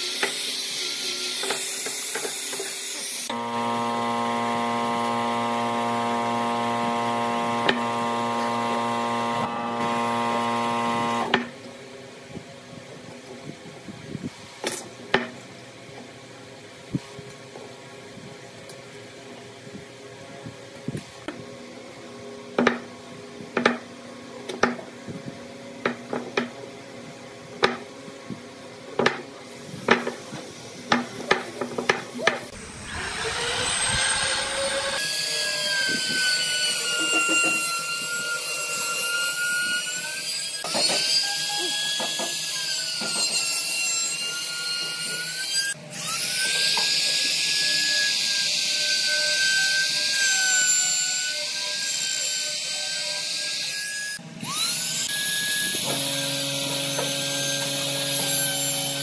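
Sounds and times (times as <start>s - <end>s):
trim router whining: 3.2s - 11.5s, 32.5s - 43.4s, 44.1s - 59.0s
hand saw strokes: 29.6s - 59.0s.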